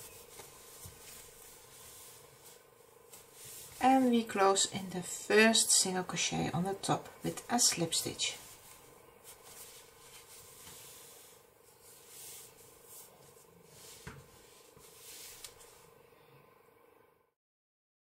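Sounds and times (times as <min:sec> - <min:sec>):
faint steady hum: 0:00.0 - 0:17.4
yarn rustling: 0:07.2 - 0:16.0.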